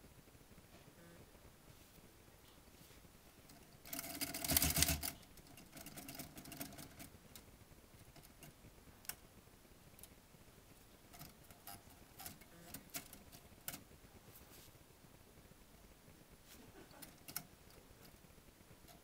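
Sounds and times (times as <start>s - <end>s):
typewriter keys clacking: 3.9s - 7.1s.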